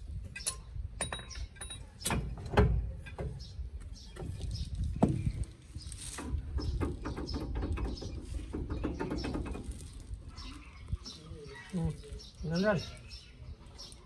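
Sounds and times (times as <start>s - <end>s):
birds chirping: 0.0s - 14.0s
driveshaft clinking and knocking: 0.2s - 3.4s.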